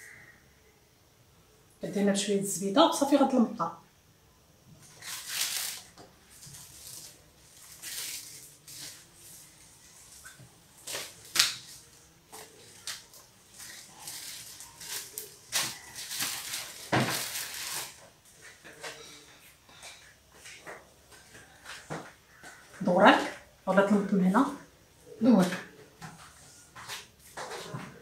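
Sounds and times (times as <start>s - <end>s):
pastry sheets rustling: 4.8s - 19.3s.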